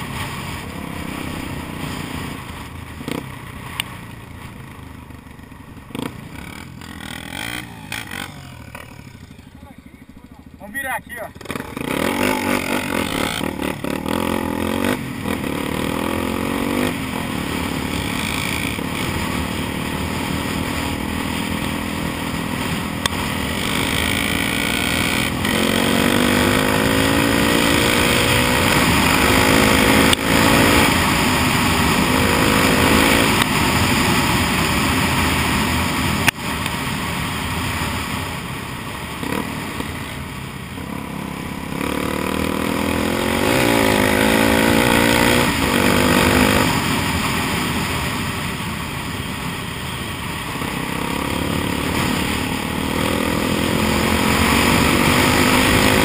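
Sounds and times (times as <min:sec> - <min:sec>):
motorcycle engine shifting gears: 0:00.0 - 0:10.7, 0:11.3 - 0:36.8.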